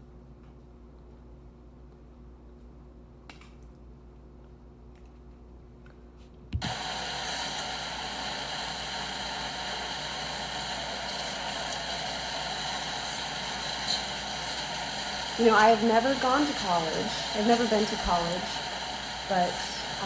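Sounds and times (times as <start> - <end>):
low steady hum: 0.0 - 20.0
loud static hiss: 6.6 - 20.0.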